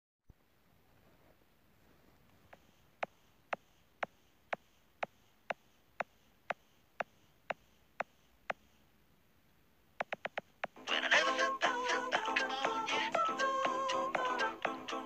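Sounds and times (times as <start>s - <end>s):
faint hiss: 0.3s - 15.0s
sharp percussive clicks: 2.5s - 8.8s, 10.0s - 10.8s.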